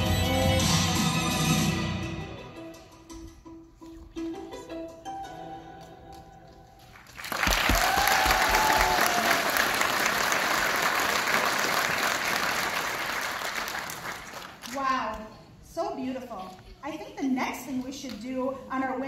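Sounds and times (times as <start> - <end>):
audience applause: 6.9 - 14.7.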